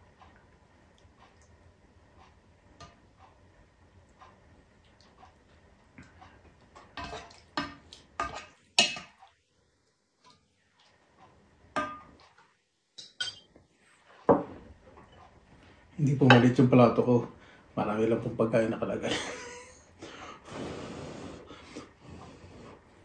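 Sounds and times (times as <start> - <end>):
spoon clinking against pot and plate: 7.0 - 9.2, 11.8 - 12.2, 13.0 - 13.5.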